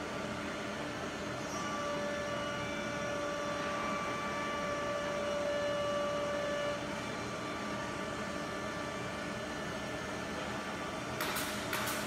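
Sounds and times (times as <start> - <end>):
machine whining tones: 1.3 - 10.1
wood router machine running: 1.5 - 7.6.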